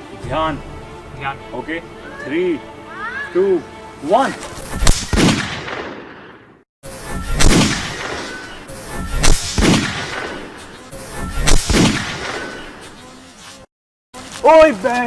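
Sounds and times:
background music: 0:00.0 - 0:06.0.

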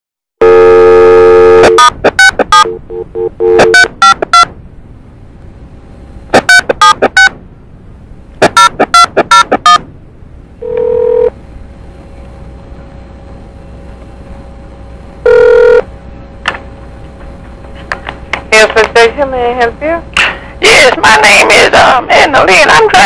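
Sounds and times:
dial tone: 0:00.4 - 0:04.2, 0:10.6 - 0:11.3, 0:15.2 - 0:15.9
ringback tone: 0:00.4 - 0:04.5, 0:08.4 - 0:09.8, 0:10.6 - 0:11.4, 0:15.2 - 0:15.9.

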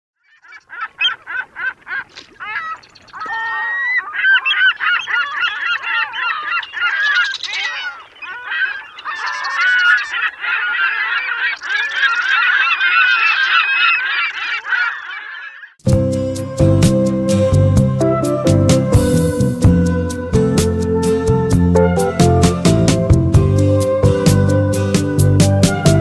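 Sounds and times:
flock of birds honking: 0:00.3 - 0:15.8.

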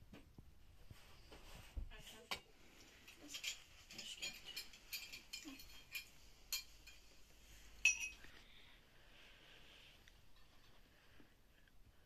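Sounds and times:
cutlery clinking on plates: 0:03.2 - 0:07.1, 0:07.8 - 0:08.3
sharp ringing clink: 0:07.8 - 0:08.3.

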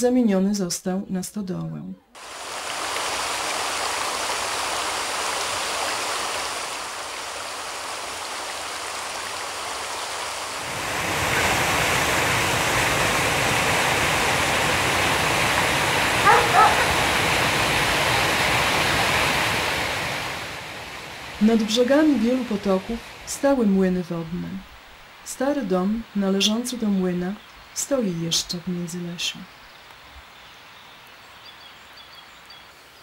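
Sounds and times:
small waterfall pouring: 0:02.2 - 0:21.4
stream rushing over rocks: 0:02.2 - 0:23.4
dog barking: 0:16.2 - 0:17.1.

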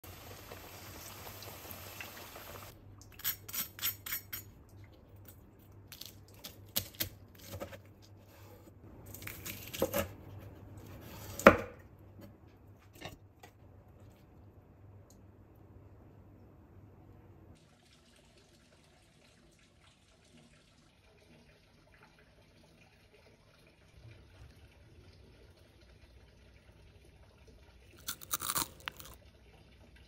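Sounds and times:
deep frying sizzle: 0:00.0 - 0:02.7
cutter crunching through crust: 0:28.0 - 0:29.2.

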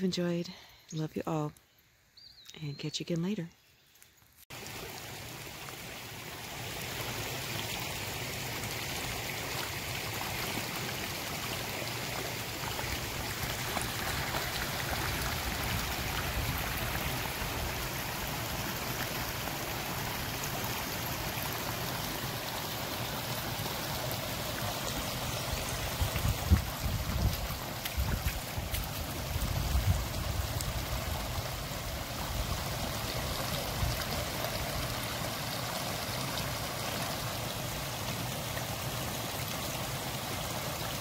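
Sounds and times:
stream babbling over stones: 0:04.5 - 0:41.0.

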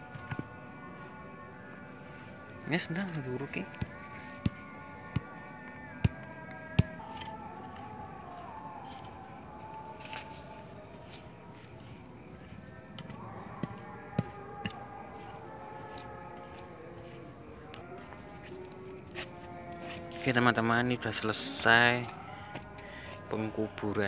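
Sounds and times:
crickets chirring: 0:00.0 - 0:24.0.

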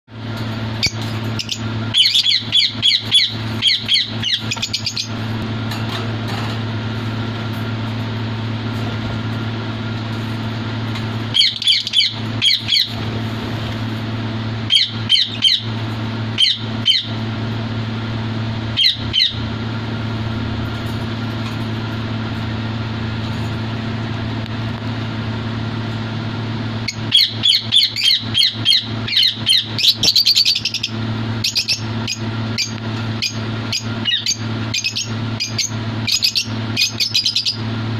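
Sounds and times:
steady low hum: 0:00.1 - 0:37.9
lovebirds chirping: 0:00.8 - 0:05.2, 0:11.3 - 0:13.0.

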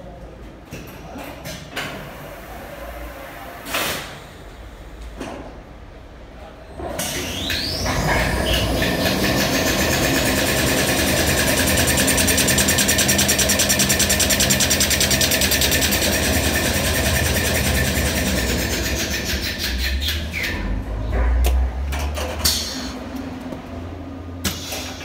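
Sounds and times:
machine whine and mechanical rhythm: 0:07.0 - 0:20.6.

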